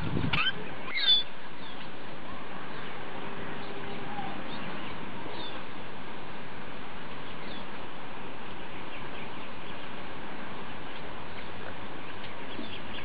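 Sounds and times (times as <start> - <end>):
steady outdoor hiss: 0.0 - 13.0
bird chirps: 0.3 - 1.8.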